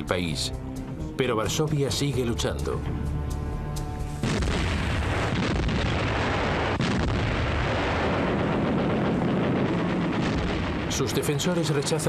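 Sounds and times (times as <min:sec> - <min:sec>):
artillery fire: 0:04.2 - 0:12.0
explosions: 0:04.2 - 0:12.0.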